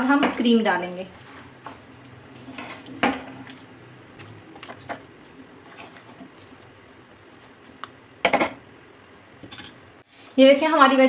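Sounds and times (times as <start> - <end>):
metal spoon scraping a pan: 1.1 - 3.5.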